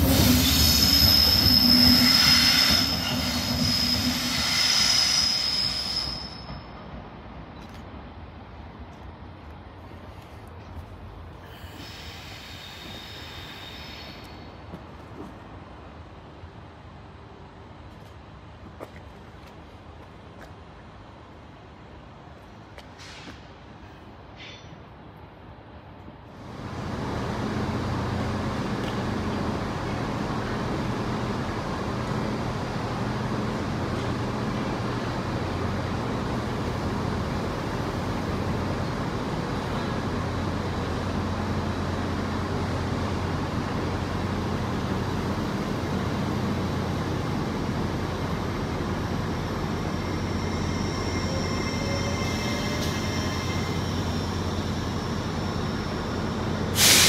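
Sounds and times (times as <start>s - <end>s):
rail rumble: 0.0s - 57.0s
train engine drone: 0.0s - 57.0s
faint high squeals: 0.1s - 6.8s, 49.8s - 56.4s.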